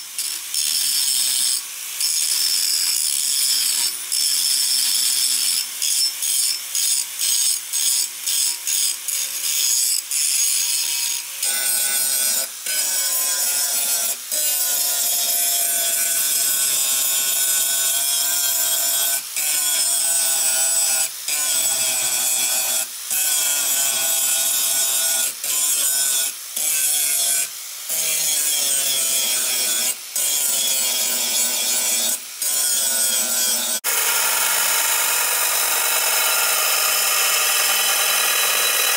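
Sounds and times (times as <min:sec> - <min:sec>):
angle grinder grinding steel: 0:00.0 - 0:38.9
belt grinder: 0:00.0 - 0:38.9.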